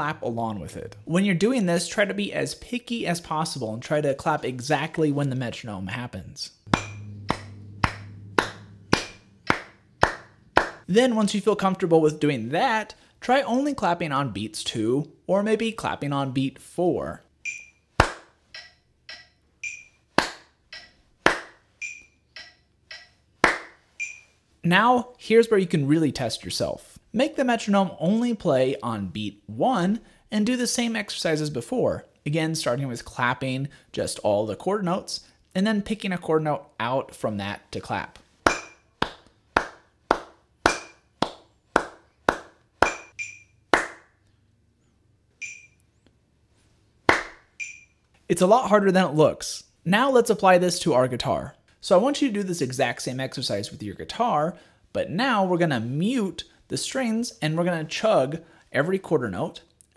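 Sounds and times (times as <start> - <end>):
hand claps: 6.7 - 10.9, 18.0 - 18.3, 20.2 - 20.5, 21.3 - 21.6, 23.4 - 23.8, 38.5 - 44.1, 47.1 - 47.4
metronome ticking: 17.4 - 17.8, 18.5 - 20.0, 20.7 - 21.0, 21.8 - 23.2, 24.0 - 24.3, 42.8 - 43.5, 45.4 - 45.8, 47.6 - 47.9
higher accented metronome click: 18.5 - 20.0, 21.8 - 23.2, 24.0 - 24.3, 47.6 - 47.9.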